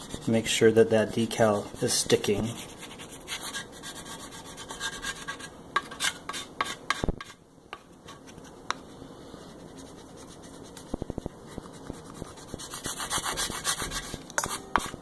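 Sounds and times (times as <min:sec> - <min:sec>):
plastic spatula scraping vinyl: 0:09.5 - 0:15.0.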